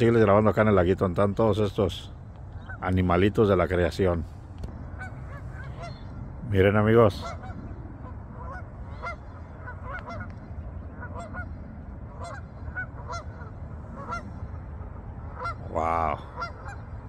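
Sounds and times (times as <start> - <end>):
low steady rumble: 0.0 - 17.0
geese honking: 4.9 - 17.0.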